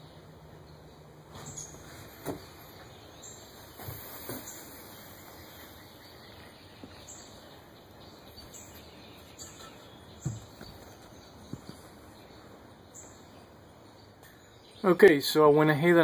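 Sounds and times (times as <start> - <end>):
faint outdoor hiss: 0.0 - 16.0
soft knocks: 10.2 - 11.8.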